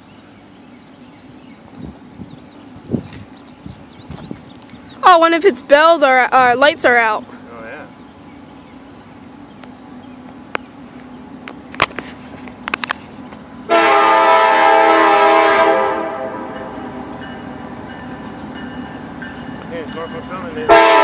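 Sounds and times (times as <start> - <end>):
low rumble of train: 0.0 - 21.0
locomotive air horn blast: 13.7 - 17.0, 20.7 - 21.0.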